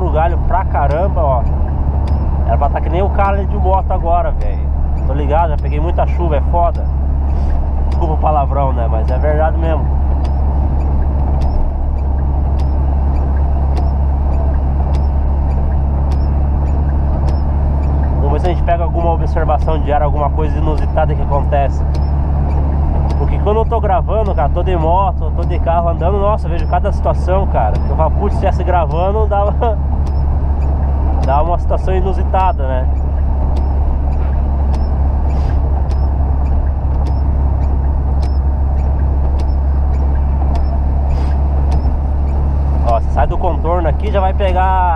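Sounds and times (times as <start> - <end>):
engine and tyre drone: 0.0 - 44.9
light ticking: 0.0 - 44.9
windshield wipers clicking: 0.0 - 44.9.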